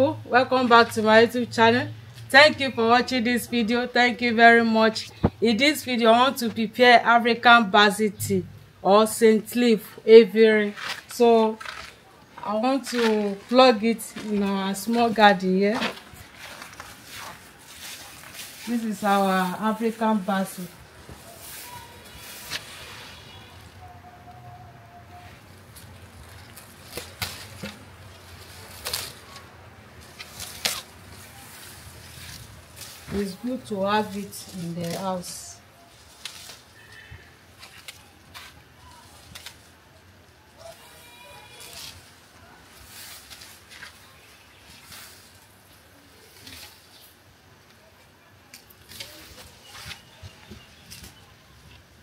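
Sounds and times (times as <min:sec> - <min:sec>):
herb sprigs snapping and rustling: 0:10.7 - 0:22.8, 0:25.5 - 0:47.8, 0:48.5 - 0:51.9.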